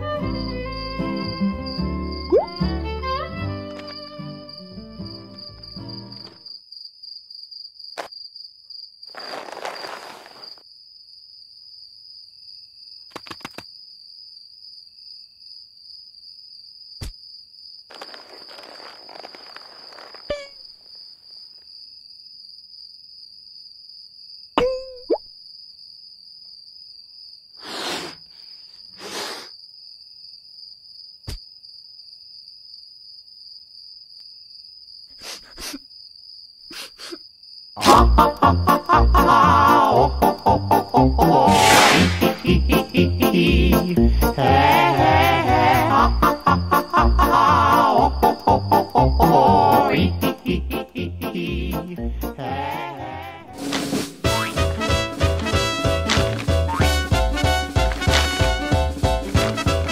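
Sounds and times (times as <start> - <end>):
crickets chirring: 0.2 - 39.0
sliding squeak: 18.0 - 20.6
cartoon swishing noises: 41.2 - 43.0.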